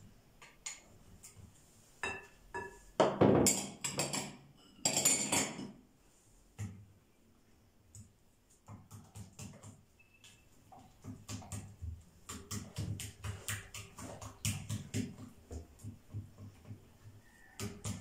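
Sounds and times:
whisk beating batter in bowl: 10.7 - 18.0.

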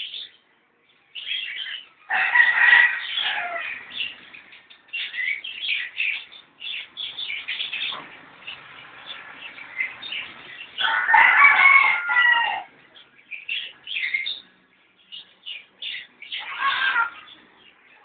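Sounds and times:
chickens calling: 0.0 - 18.0
small birds calling: 0.0 - 18.0
rooster crowing: 2.1 - 4.0, 10.8 - 12.7.

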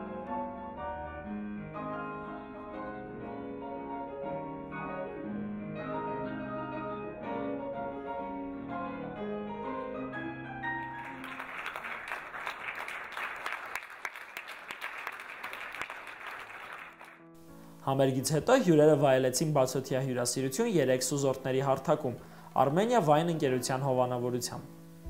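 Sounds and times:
audience applause: 10.8 - 17.2.

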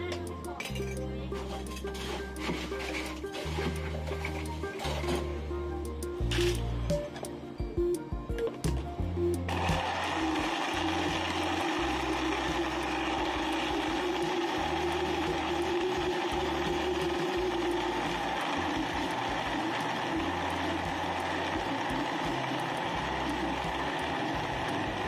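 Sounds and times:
blender motor churning ice: 0.0 - 5.4, 9.4 - 25.0.

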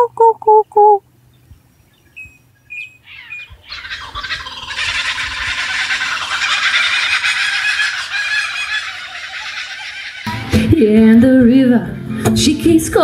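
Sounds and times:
kookaburra cackling laughter: 3.1 - 10.3.

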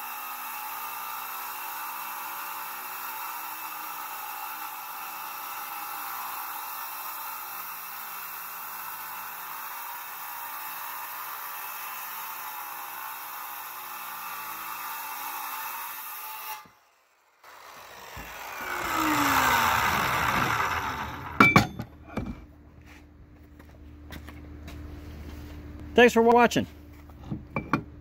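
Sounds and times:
circular saw cutting metal: 0.0 - 21.9
metal piece knocking: 21.4 - 22.4.

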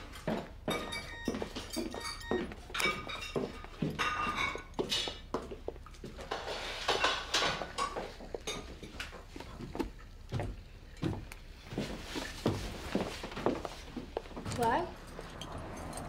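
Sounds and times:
dishes and cutlery clinking: 0.2 - 9.4.

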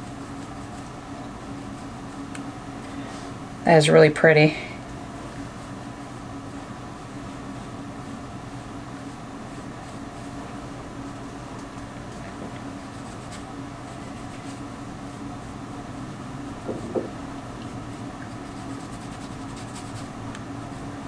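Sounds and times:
low room hum: 0.0 - 21.0
makeup brush rubbing on skin: 0.1 - 1.0, 12.8 - 14.7, 18.2 - 20.2
soft knock: 16.6 - 17.2.

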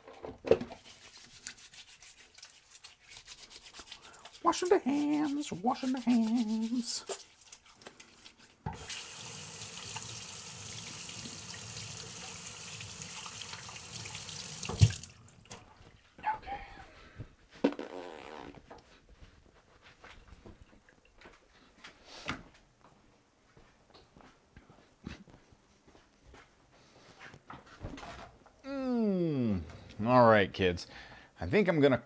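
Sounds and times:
tap water running into sink: 8.6 - 15.6.

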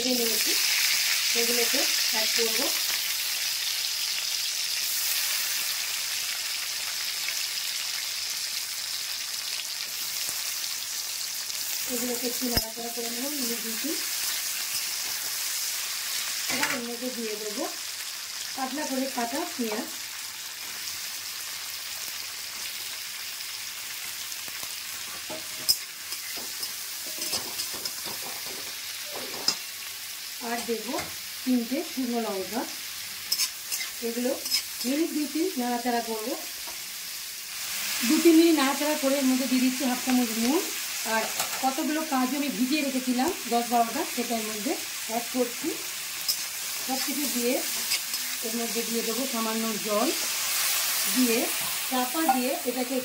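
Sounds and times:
food sizzling in hot oil: 0.0 - 53.0
spatula scraping pan: 46.2 - 48.5.

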